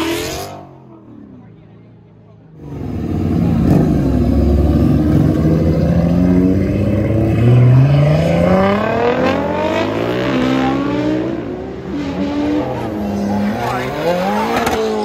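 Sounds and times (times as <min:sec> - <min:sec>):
car accelerating hard: 0:02.6 - 0:15.0.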